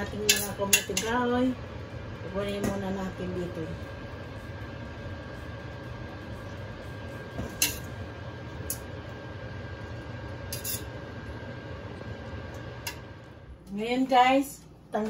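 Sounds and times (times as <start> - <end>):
steady low hum: 0.0 - 15.0
metal tongs clinking on pot: 0.2 - 1.2, 10.5 - 10.9.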